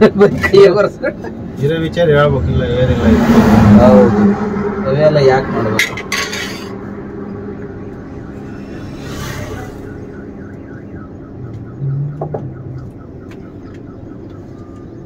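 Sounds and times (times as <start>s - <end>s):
electronic alarm chirping: 7.2s - 15.0s.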